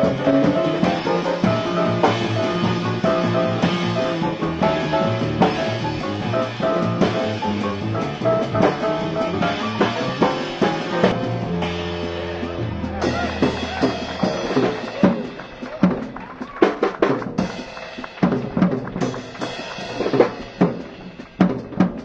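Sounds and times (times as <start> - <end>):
jazz quartet playing: 0.0 - 16.2.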